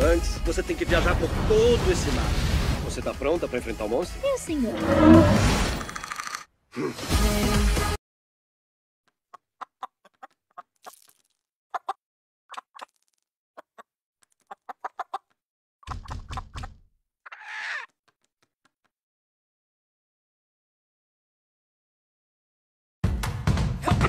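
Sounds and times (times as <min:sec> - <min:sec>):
rooster squawk: 0:17.3 - 0:17.9.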